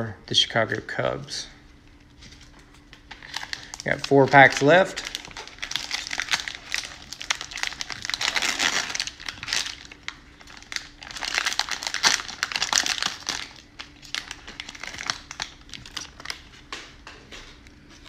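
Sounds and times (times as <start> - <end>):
plastic wrapper tearing and crinkling: 2.2 - 16.5.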